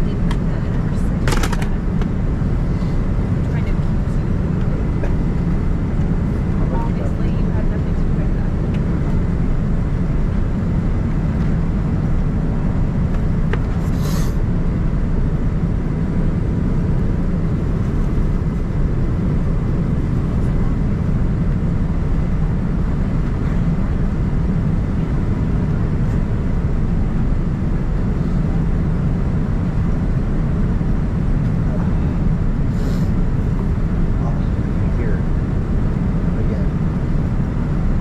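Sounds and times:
airplane cabin engine noise: 0:00.0 - 0:38.0.

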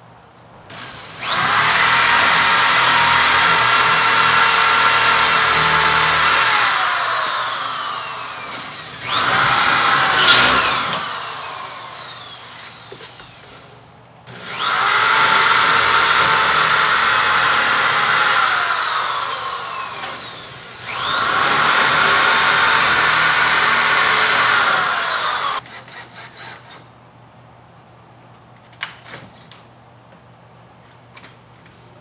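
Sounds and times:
electric drill boring into wood: 0:00.7 - 0:13.7, 0:14.3 - 0:25.7.

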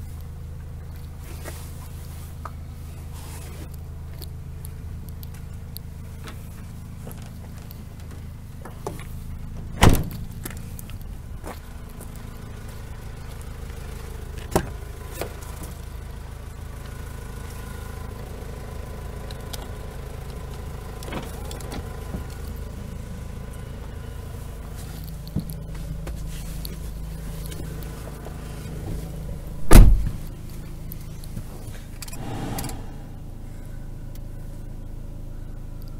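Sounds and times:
diesel engine idling: 0:00.0 - 0:35.9
loud thump: 0:32.1 - 0:33.5.

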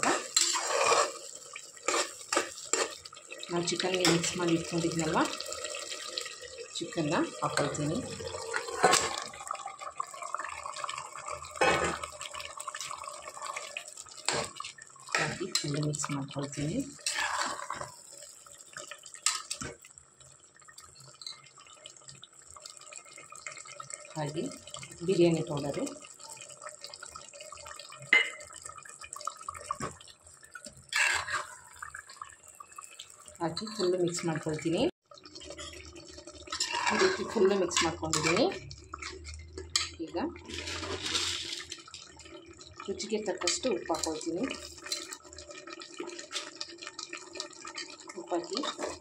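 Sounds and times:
steel spoon stirring: 0:00.0 - 0:03.2, 0:17.0 - 0:18.0, 0:36.5 - 0:41.9, 0:43.4 - 0:45.2
food sizzling and bubbling in oil: 0:00.0 - 0:49.0
food splashing into oil: 0:00.0 - 0:49.0.

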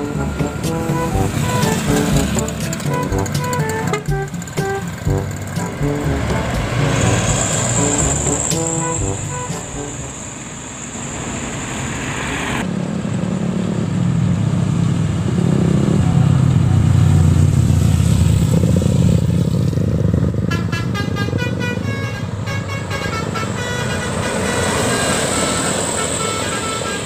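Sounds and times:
multi-tone bus horn melody: 0:00.0 - 0:10.6, 0:20.4 - 0:27.0
traffic engine and road rumble: 0:00.0 - 0:27.0.

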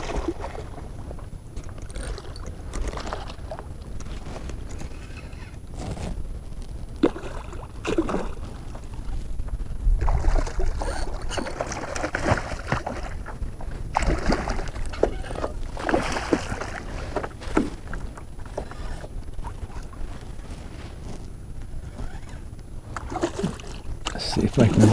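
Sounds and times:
wind rumble on microphone: 0:00.0 - 0:24.9
fish splashing in water: 0:07.0 - 0:08.8, 0:10.0 - 0:19.1, 0:22.9 - 0:24.0.

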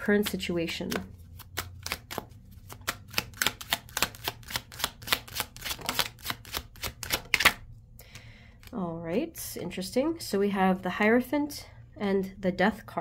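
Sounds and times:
cards being shuffled: 0:00.1 - 0:08.8.

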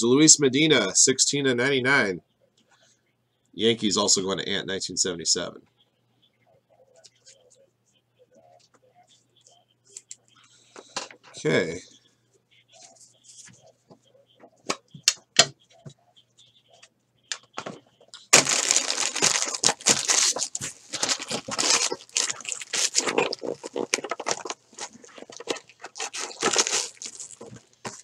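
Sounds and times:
wrappers crinkling and tearing: 0:18.2 - 0:28.0.

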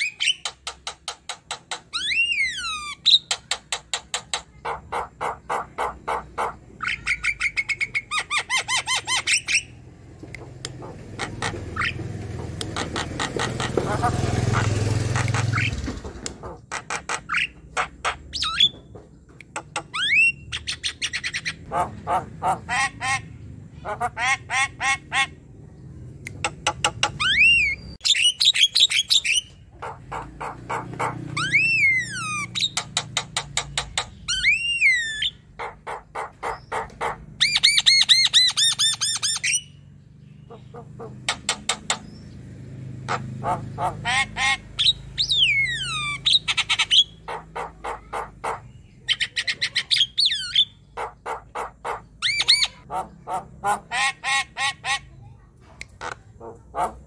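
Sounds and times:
bird chattering and whistling: 0:00.0 - 0:18.8, 0:19.4 - 0:42.4, 0:43.1 - 0:57.0.

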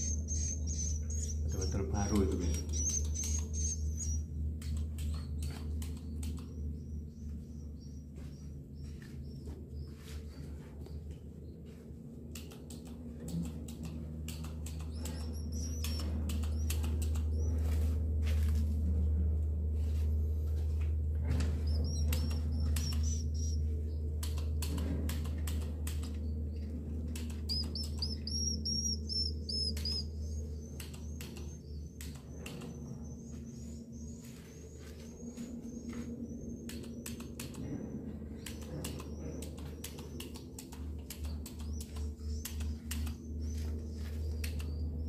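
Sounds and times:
high thin twittering chirps: 0:00.0 - 0:04.3, 0:14.4 - 0:17.6, 0:21.5 - 0:24.4, 0:27.2 - 0:37.5
wing flutters: 0:00.0 - 0:11.4, 0:12.0 - 0:45.0
birds clicking: 0:00.0 - 0:18.3, 0:21.2 - 0:45.0.

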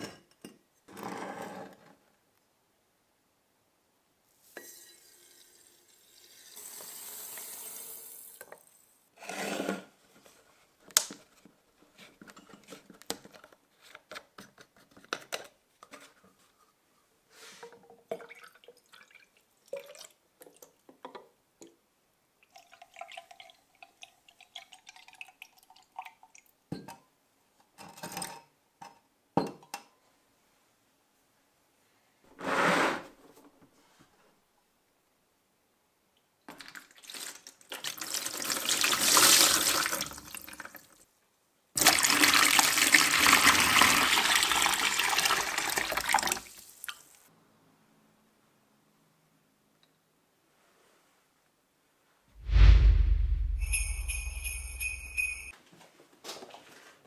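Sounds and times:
liquid pouring into flask: 0:22.4 - 0:26.4
glass clinking: 0:53.6 - 0:55.5.

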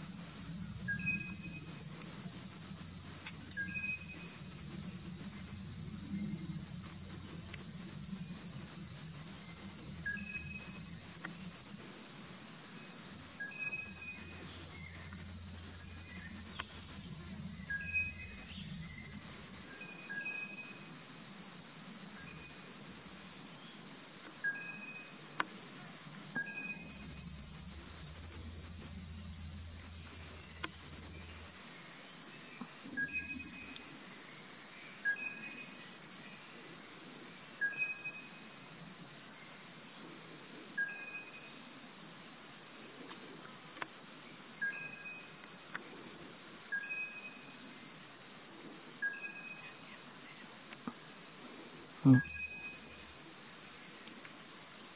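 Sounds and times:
insects droning: 0:00.0 - 0:54.9.

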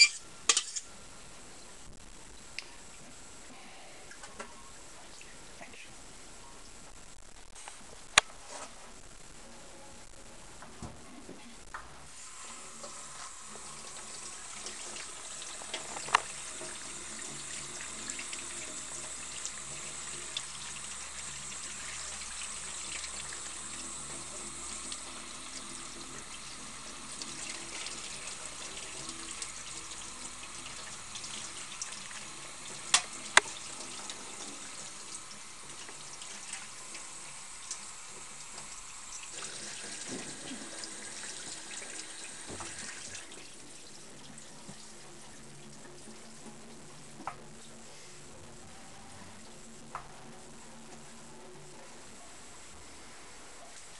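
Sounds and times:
tap water running: 0:12.1 - 0:47.9.

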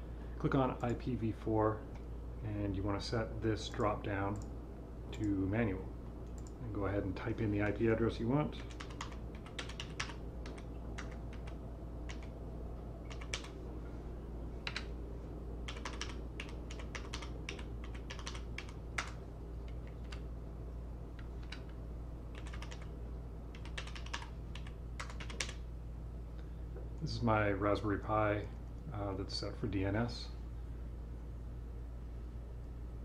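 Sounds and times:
low background hum: 0:00.0 - 0:33.0
keyboard typing: 0:08.6 - 0:12.3, 0:13.0 - 0:13.6, 0:14.6 - 0:14.9, 0:15.7 - 0:20.2, 0:21.2 - 0:22.9, 0:23.5 - 0:25.6.

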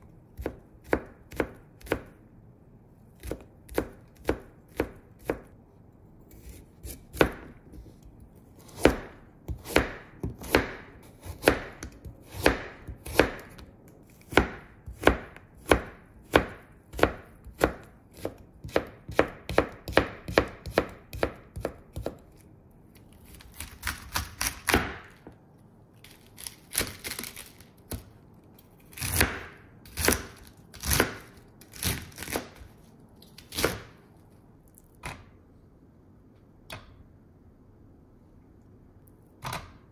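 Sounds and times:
knife chopping on cutting board: 0:00.4 - 0:02.1, 0:03.2 - 0:05.5, 0:06.3 - 0:08.0, 0:08.6 - 0:22.2, 0:23.5 - 0:25.3, 0:28.9 - 0:32.7, 0:33.4 - 0:34.0.

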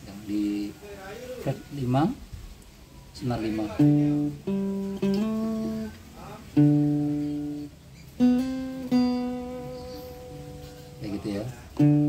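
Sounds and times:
guitar plucked melody: 0:03.3 - 0:12.0.

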